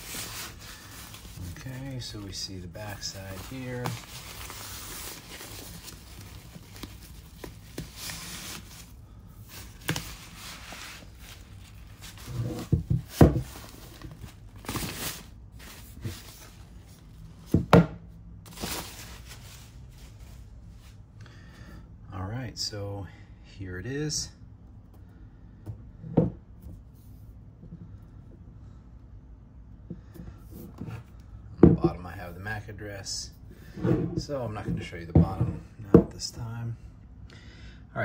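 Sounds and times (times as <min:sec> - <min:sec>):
paper sleeve rustling: 0:00.0 - 0:17.2, 0:18.5 - 0:21.0.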